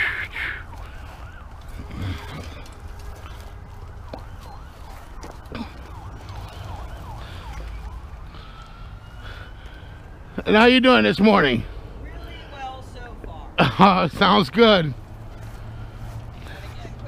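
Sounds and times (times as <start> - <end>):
distant siren wailing: 0.0 - 12.9
low outdoor rumble: 0.0 - 17.0.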